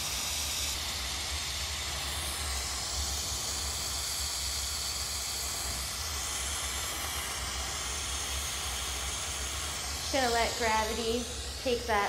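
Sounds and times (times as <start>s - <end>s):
torch flame hissing and rumbling: 0.0s - 12.0s.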